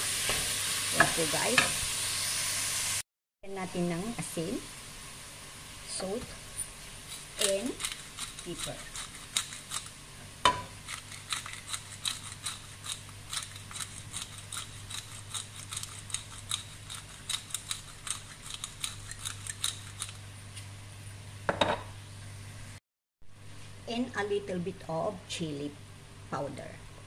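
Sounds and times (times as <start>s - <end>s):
meat and onion sizzling: 0.0s - 11.8s
wooden spoon scraping pot: 6.6s - 9.9s.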